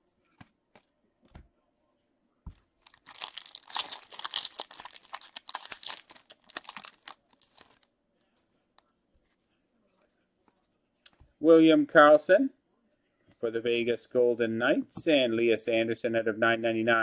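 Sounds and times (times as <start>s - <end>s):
foil wrapper crinkling and tearing: 2.8s - 7.9s.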